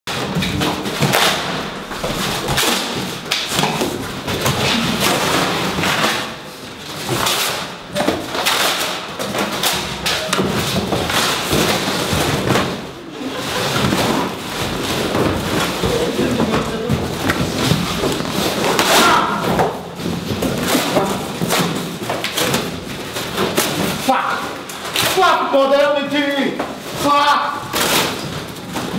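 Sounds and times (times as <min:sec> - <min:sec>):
cardboard knocks and thuds: 0:13.6 - 0:24.0.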